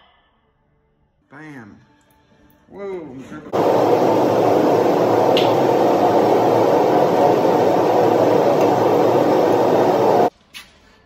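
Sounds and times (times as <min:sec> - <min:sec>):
loud steady rushing noise: 0:03.5 - 0:10.3.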